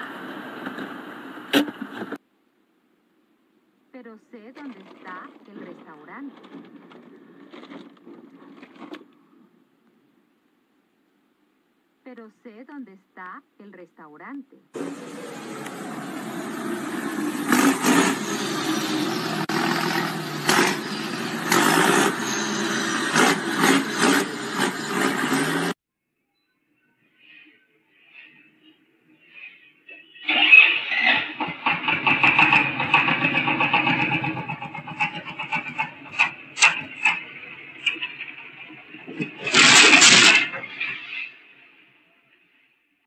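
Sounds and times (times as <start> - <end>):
car engine and road noise: 0.0 - 2.2, 4.3 - 10.1, 14.7 - 25.8, 29.1 - 41.9
cart crashing over: 4.6 - 9.4, 30.3 - 41.4
loud crashing bursts: 14.8 - 25.8, 30.3 - 41.4.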